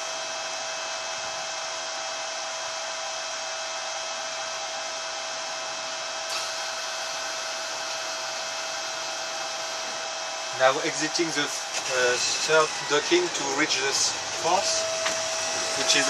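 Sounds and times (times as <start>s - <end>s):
machinery whir with high whine: 0.0s - 16.0s.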